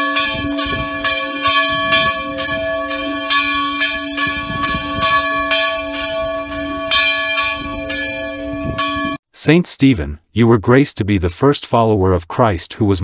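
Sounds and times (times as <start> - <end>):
church bells ringing: 0.0 - 9.2.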